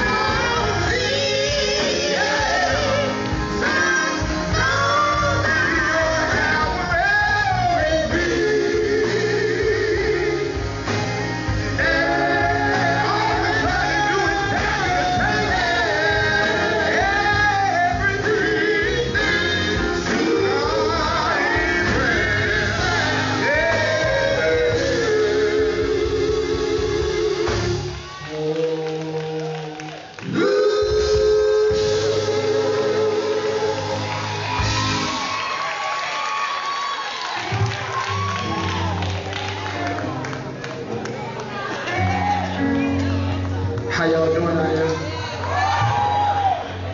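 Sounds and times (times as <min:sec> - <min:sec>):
male vocal quartet singing: 0:00.0 - 0:34.4
band playing: 0:00.0 - 0:46.9.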